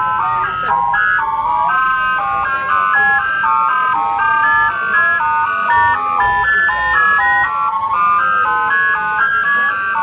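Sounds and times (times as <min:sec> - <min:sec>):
beeping synthesized tones: 0:00.0 - 0:10.0.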